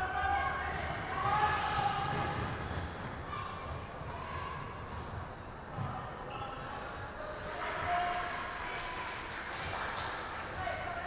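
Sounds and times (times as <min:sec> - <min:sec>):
sneaker squeaks: 0:00.8 - 0:07.6.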